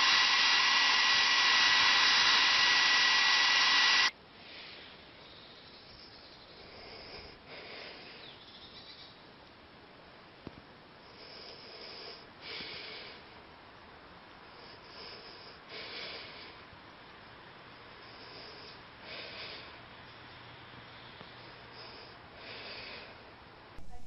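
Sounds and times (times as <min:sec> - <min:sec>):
faint steady hiss: 0:00.0 - 0:24.0
soft breathy puffs: 0:04.3 - 0:08.5.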